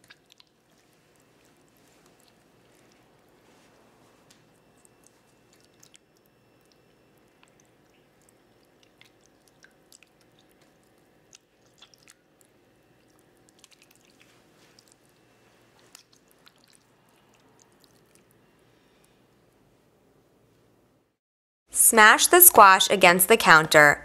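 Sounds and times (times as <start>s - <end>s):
tomatoes squelching crushed by hand: 0.0s - 18.4s.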